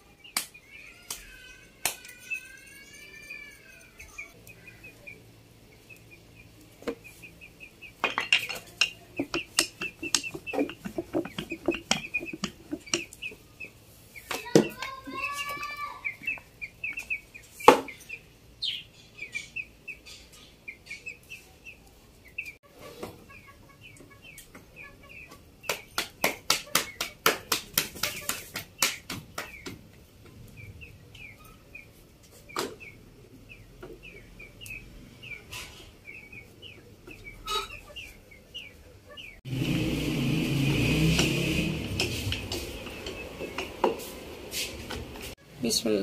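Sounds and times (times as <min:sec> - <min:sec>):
cage birds chirping: 0:00.0 - 0:46.0
rolling pin on wooden board: 0:09.2 - 0:13.2
hands slapping dough: 0:25.7 - 0:29.9.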